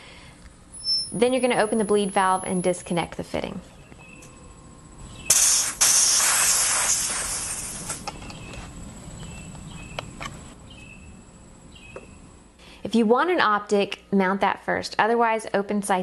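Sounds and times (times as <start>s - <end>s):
high-pressure air hissing: 5.2s - 8.2s.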